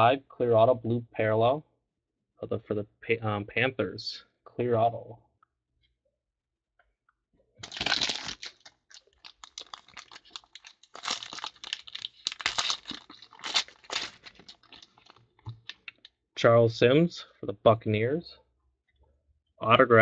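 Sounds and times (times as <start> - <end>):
foil wrapper tearing and crinkling: 7.6 - 15.9.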